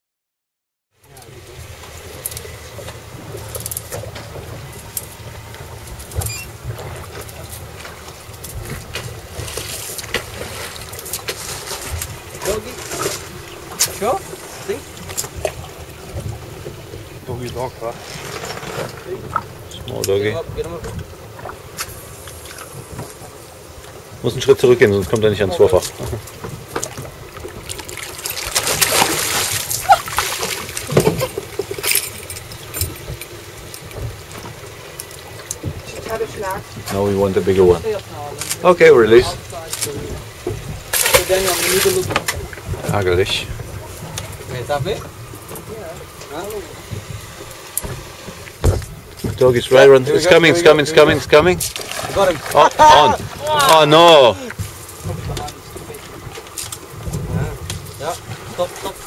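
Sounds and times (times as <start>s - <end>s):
boat noise: 0.9s - 59.0s
wind rumble: 1.3s - 38.2s, 38.8s - 59.0s
lure splashing on water: 25.8s - 35.9s, 40.8s - 42.9s, 51.6s - 56.9s.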